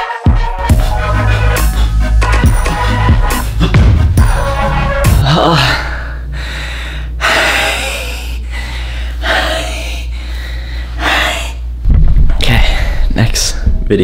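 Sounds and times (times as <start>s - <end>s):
man panting heavily: 5.1s - 11.8s.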